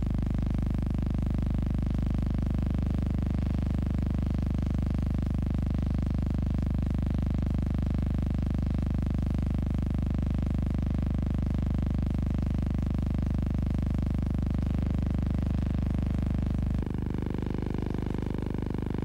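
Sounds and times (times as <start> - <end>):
electrical hum: 14.6 - 19.0.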